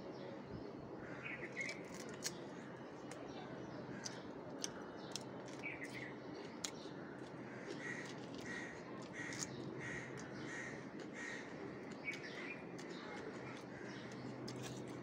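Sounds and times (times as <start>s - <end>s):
eating clicks and smacks: 1.6s - 3.2s, 4.0s - 15.0s
crow cawing: 7.5s - 11.6s.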